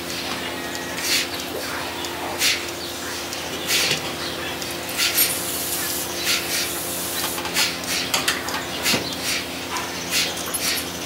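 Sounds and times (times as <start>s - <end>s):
rhythmic hissing pulses: 0.0s - 8.2s.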